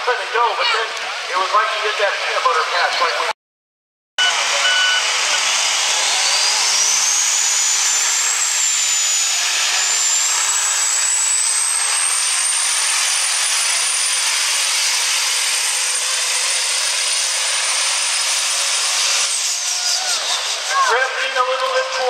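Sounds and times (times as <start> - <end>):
turbocharger whistle: 4.2 - 20.9
diesel engine running flat out: 4.2 - 22.0.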